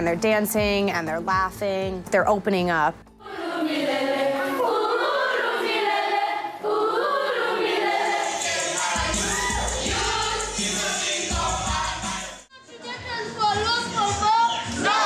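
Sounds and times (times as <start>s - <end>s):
young voices singing in chorus: 3.2s - 12.5s, 14.5s - 15.0s.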